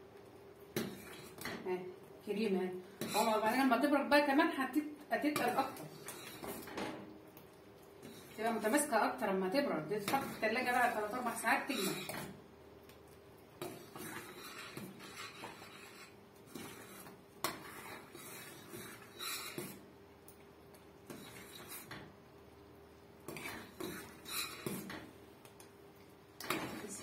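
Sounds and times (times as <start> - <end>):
spoon scraping a metal pot: 3.0 - 3.7, 5.3 - 6.7, 8.0 - 9.0, 9.9 - 12.3, 13.6 - 19.8, 21.1 - 22.0, 23.3 - 25.0.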